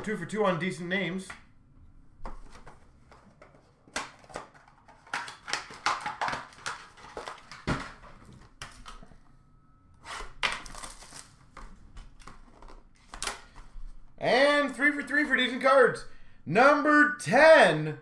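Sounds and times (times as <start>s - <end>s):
cardboard box wrapper crinkling: 10.6s - 11.4s.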